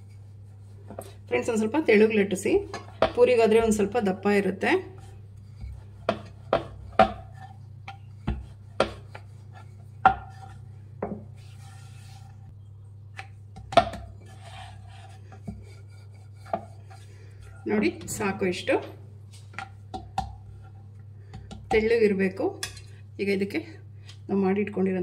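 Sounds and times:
rolling pin knocking on board: 6.1s - 7.3s, 8.3s - 9.1s.

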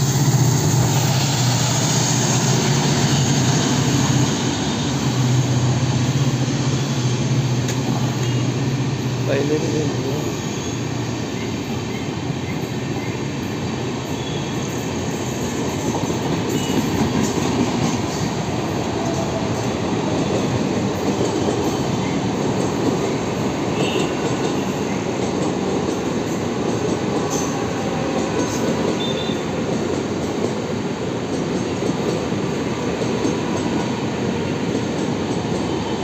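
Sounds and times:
train wheels rumbling on rails: 0.0s - 36.0s
faint high wheel squeals: 10.1s - 12.1s, 14.1s - 14.7s.

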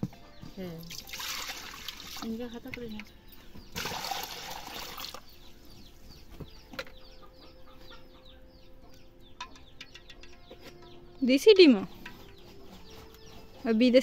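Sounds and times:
water pouring into metal pan: 0.9s - 2.3s, 3.8s - 5.2s
chickens clucking: 5.5s - 13.8s.

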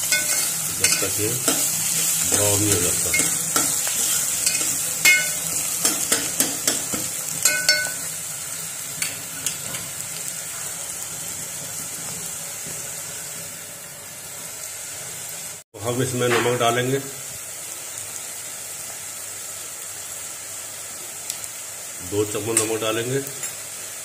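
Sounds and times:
onions sizzling in oil: 0.0s - 24.0s.

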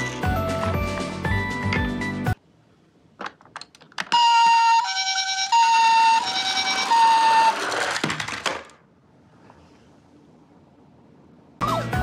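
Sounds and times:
toy ambulance siren: 4.1s - 8.0s.

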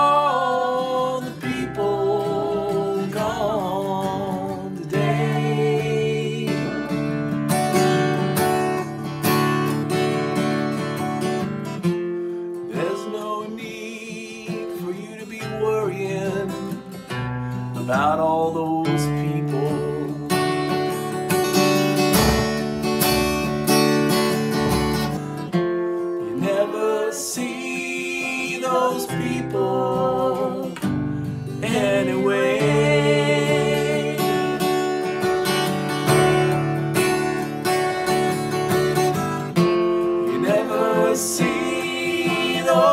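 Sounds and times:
man and woman singing: 0.0s - 7.3s, 12.7s - 16.8s, 17.8s - 20.6s, 26.2s - 35.0s, 40.2s - 42.9s
acoustic guitar strummed: 0.0s - 42.9s.

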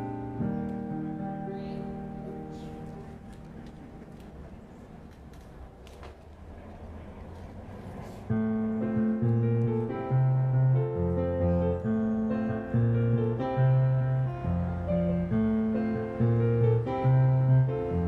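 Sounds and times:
digital keyboard chords and bass: 0.0s - 4.0s, 8.4s - 18.0s.

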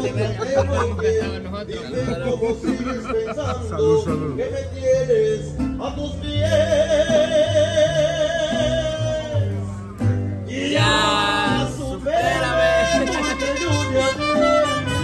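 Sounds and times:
guitar accompaniment: 0.0s - 15.0s
person singing with vibrato: 10.5s - 14.4s.

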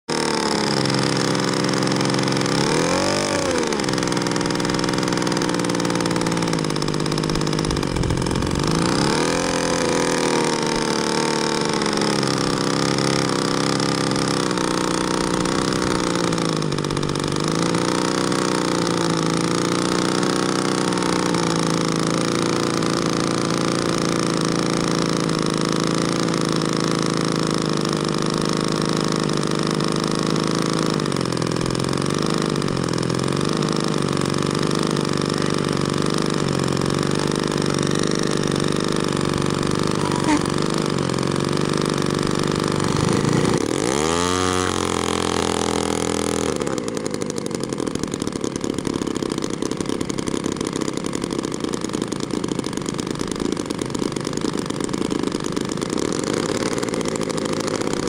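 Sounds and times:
engine throttle blips: 0.1s - 58.0s
model plane engine idling: 0.1s - 58.0s.

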